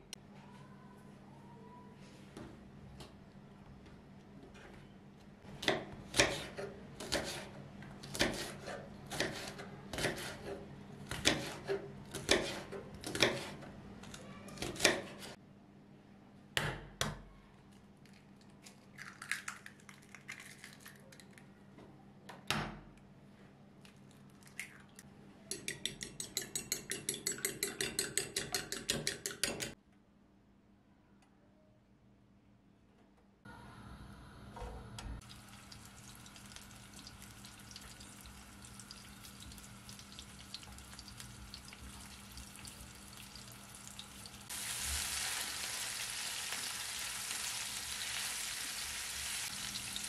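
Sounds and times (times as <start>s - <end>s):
knife chopping on wooden board: 8.1s - 10.5s, 11.1s - 13.6s.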